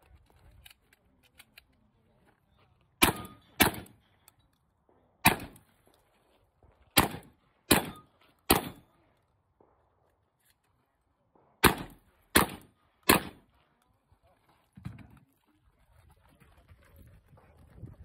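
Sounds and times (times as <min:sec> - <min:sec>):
shotgun shots: 0:03.0 - 0:04.0, 0:05.2 - 0:05.6, 0:06.9 - 0:08.9, 0:11.6 - 0:13.5.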